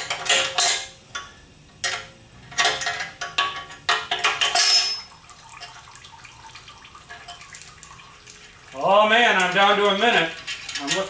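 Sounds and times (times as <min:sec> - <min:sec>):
metal tools clanking: 0:01.8 - 0:05.1, 0:09.4 - 0:11.0.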